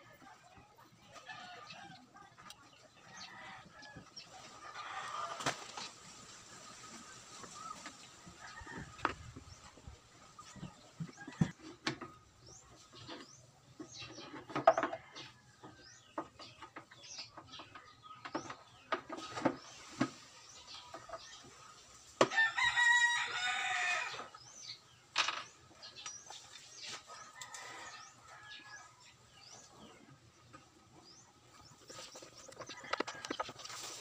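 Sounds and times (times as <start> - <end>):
rooster crowing: 22.3 - 24.2.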